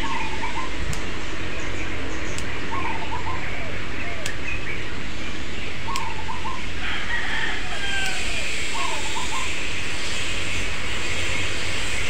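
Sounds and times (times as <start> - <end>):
steady low rumble: 0.0 - 12.0
pruning scissors snipping: 0.9 - 1.1, 2.3 - 2.6, 4.2 - 4.4, 8.0 - 8.3
rooster crowing: 6.7 - 9.3.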